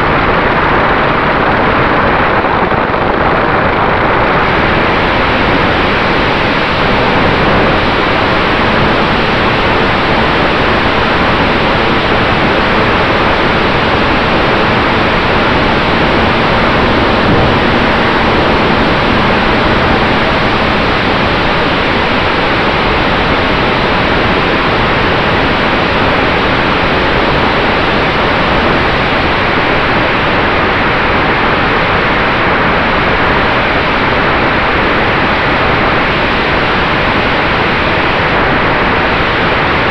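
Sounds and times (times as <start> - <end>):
faint steady hum: 0.0 - 39.9
model plane propeller: 2.8 - 30.0
airflow rushing: 4.4 - 26.2.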